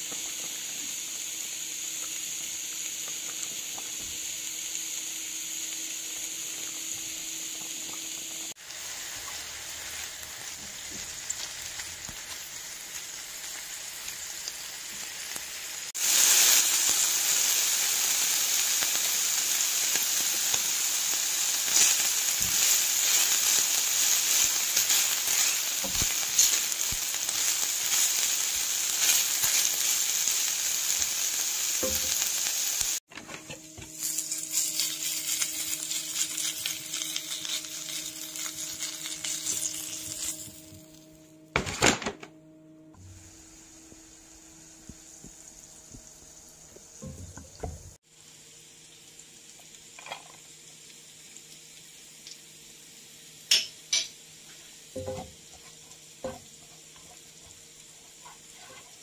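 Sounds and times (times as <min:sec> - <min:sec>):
oil crackling and popping: 0:00.0 - 0:05.1, 0:05.7 - 0:33.2, 0:33.8 - 0:41.0
food sizzling in hot oil: 0:00.0 - 0:41.4, 0:43.0 - 0:59.0.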